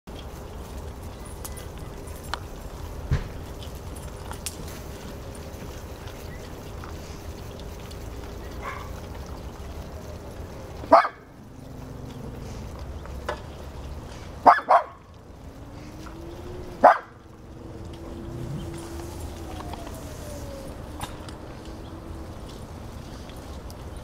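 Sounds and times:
dog barking: 0:08.6 - 0:09.0, 0:10.9 - 0:11.3, 0:14.4 - 0:15.1, 0:16.8 - 0:17.2.

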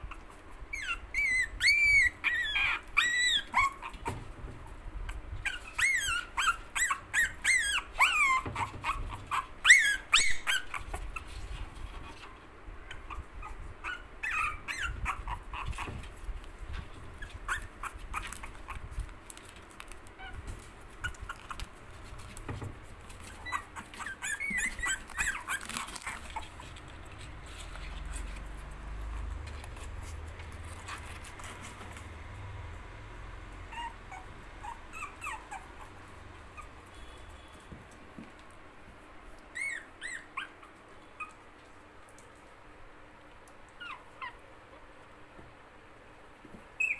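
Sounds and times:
puppies whimpering and yipping: 0:00.0 - 0:04.4, 0:05.0 - 0:19.1, 0:20.2 - 0:32.2, 0:33.6 - 0:37.0, 0:39.4 - 0:41.6, 0:43.7 - 0:44.9, 0:46.7 - 0:46.9.

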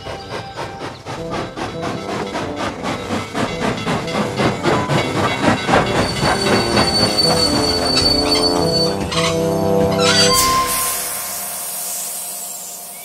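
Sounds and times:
cartoon steam locomotive chuffing: 0:00.0 - 0:13.0
high squeal of wheels: 0:05.6 - 0:11.1.

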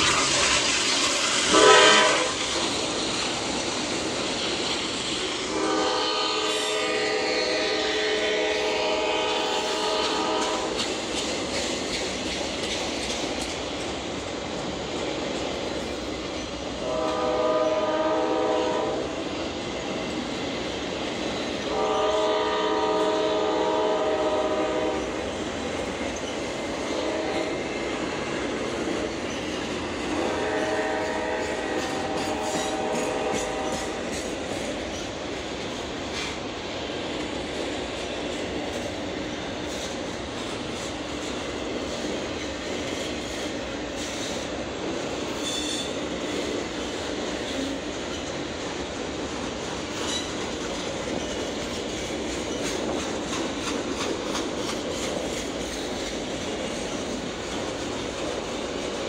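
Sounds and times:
train rolling: 0:00.0 - 0:59.0
locomotive horn blasts: 0:01.5 - 0:02.4, 0:05.5 - 0:10.8, 0:16.8 - 0:19.2, 0:21.7 - 0:25.1, 0:26.9 - 0:27.6, 0:30.1 - 0:34.1.

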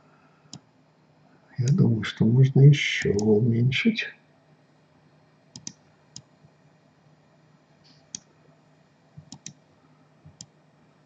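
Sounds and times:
faint steady hum: 0:00.0 - 0:11.0
computer mouse clicks: 0:05.5 - 0:06.3, 0:08.0 - 0:08.3, 0:09.2 - 0:09.6, 0:10.3 - 0:10.6.

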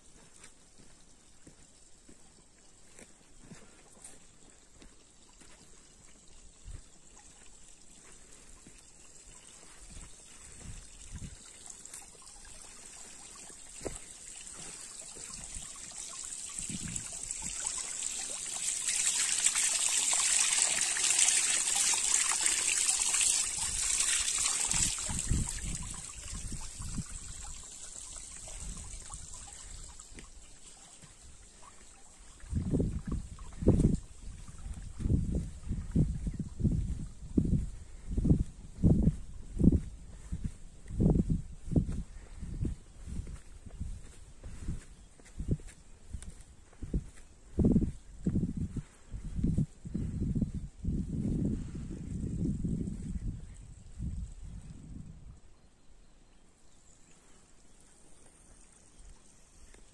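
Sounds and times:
spring water trickling over rocks: 0:00.0 - 0:38.2, 0:56.6 - 0:59.9.

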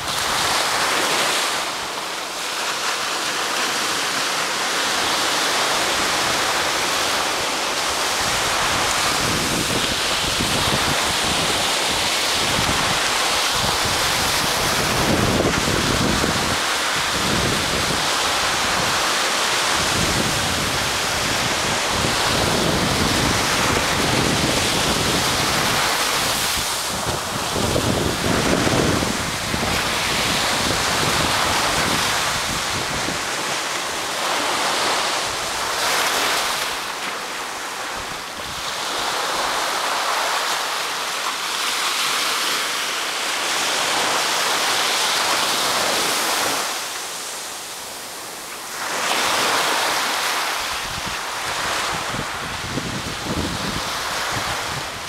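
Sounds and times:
waves breaking on beach: 0:00.0 - 0:55.0
wind rumbling on microphone: 0:04.6 - 0:37.0, 0:49.0 - 0:55.0.

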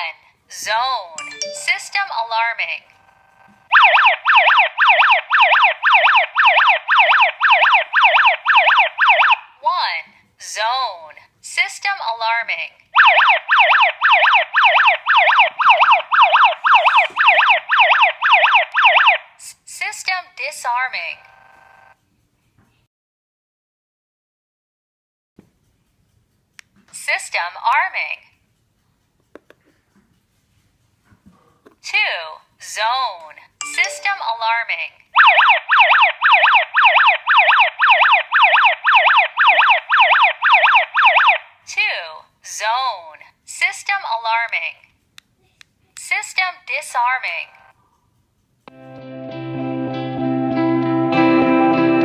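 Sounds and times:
alarm siren whooping: 0:03.4 - 0:09.5, 0:13.0 - 0:19.2, 0:35.2 - 0:41.5.

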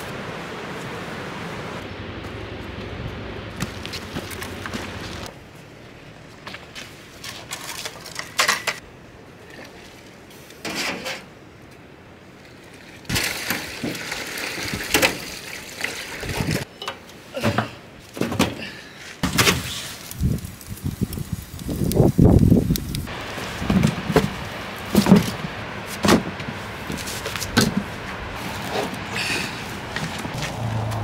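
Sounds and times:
sap pouring into pans: 0:13.1 - 0:16.6.

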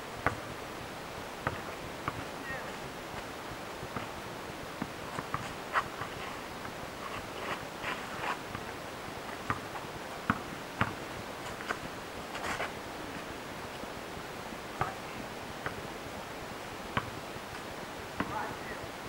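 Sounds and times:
steady hiss: 0:00.0 - 0:19.0
basketball bouncing on asphalt: 0:09.5 - 0:11.0.

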